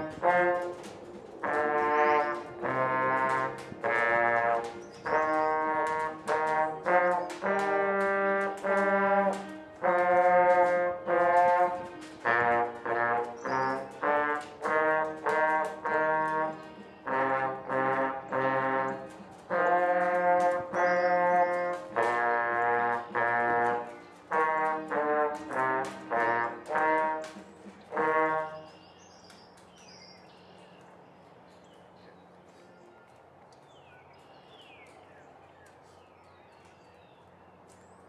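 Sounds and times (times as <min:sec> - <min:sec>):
trombone held notes: 0:00.0 - 0:28.9.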